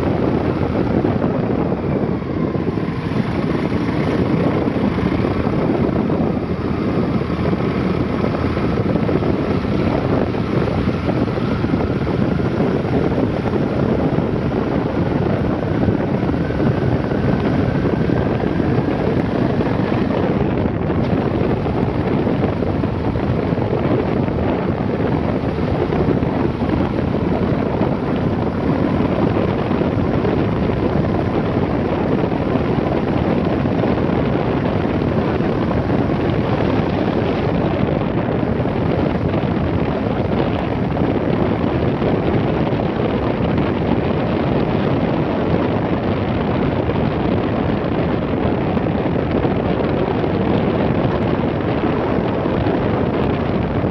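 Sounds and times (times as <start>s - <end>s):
vehicle engine and tyres: 0.0s - 53.9s
wind rush over microphone: 0.0s - 53.9s.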